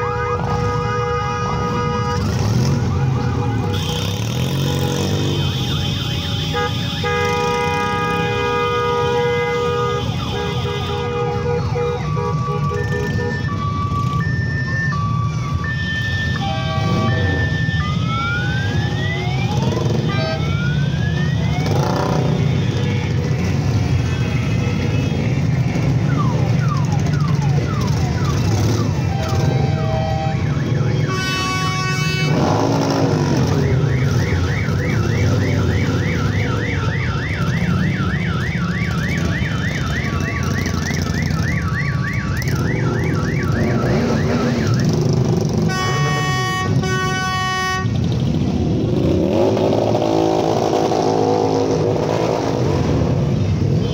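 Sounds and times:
motorcycle engines rumbling: 0.0 - 53.9
two-tone beeping siren: 1.5 - 53.9
wailing siren: 1.5 - 53.9
fast rising siren yelp: 11.6 - 22.3, 32.6 - 46.8
loud horn blast: 16.4 - 17.2, 31.0 - 33.2, 45.5 - 48.2.

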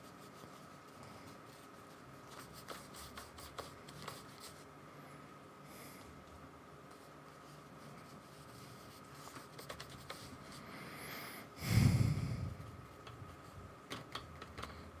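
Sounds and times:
paintbrush dabbing on paper: 0.0 - 4.6, 6.9 - 10.6
muffled puff: 11.6 - 12.7.

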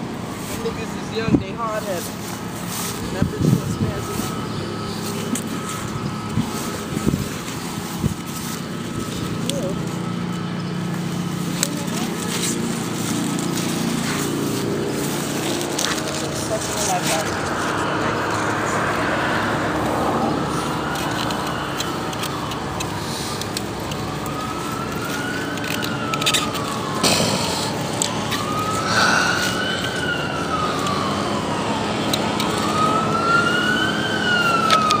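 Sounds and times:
emergency siren wailing: 0.0 - 35.0.

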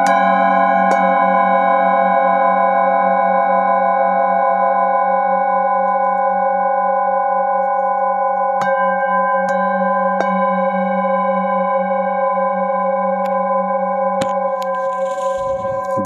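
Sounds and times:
mallet striking bowl: 0.0 - 1.6, 8.6 - 11.8
singing bowls ringing: 0.0 - 16.0.

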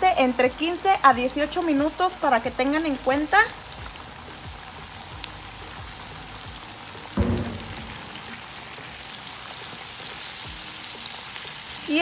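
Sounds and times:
oil crackling and sizzling: 0.0 - 12.0
loud thump: 7.2 - 8.6.

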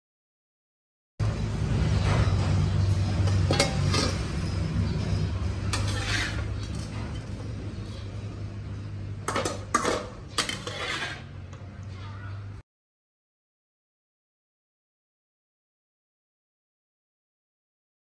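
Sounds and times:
metal spatula scraping a wok: 2.8 - 7.9, 9.2 - 11.5.

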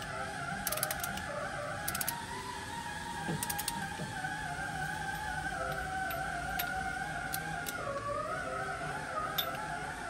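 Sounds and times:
ratchet wrench clicking: 0.0 - 1.2, 1.8 - 2.2, 3.4 - 3.9, 5.7 - 7.8, 9.4 - 9.6.

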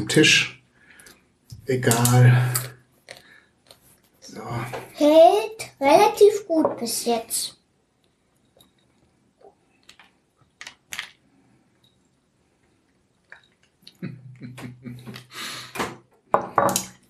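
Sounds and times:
crisp food crackling: 8.9 - 11.3.

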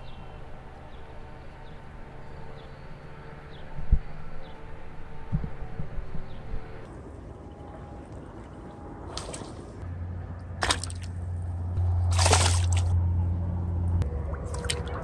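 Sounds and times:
low rumble: 3.5 - 15.0
fish splashing at water surface: 9.0 - 9.8, 10.6 - 11.2, 11.9 - 13.0, 14.3 - 15.0.

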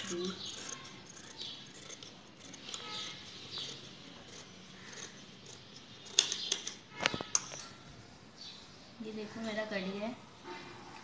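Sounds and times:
scissors snipping fabric: 0.0 - 6.5.

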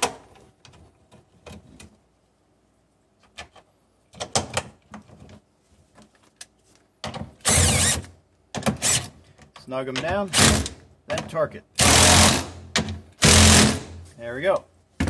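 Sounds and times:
cordless drill running: 7.4 - 8.0, 11.8 - 12.5.

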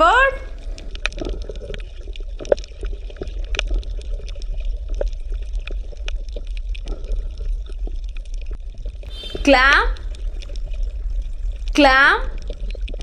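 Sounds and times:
water gurgling and trickling: 0.0 - 13.0
steady low hum: 9.0 - 12.9.

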